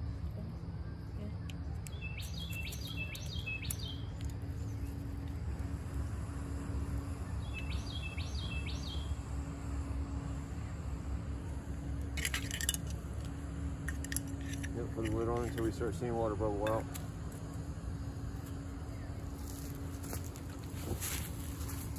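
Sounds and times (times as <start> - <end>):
steady low rumble: 0.0 - 21.9
songbird chirping: 0.2 - 6.0, 6.8 - 11.2.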